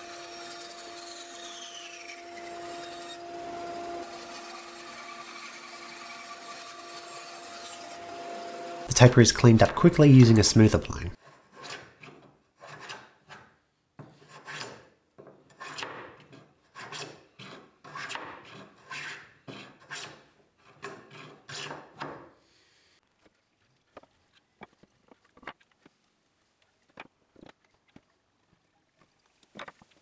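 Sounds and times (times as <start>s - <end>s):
hand plane shaving wood: 15.6s - 21.9s.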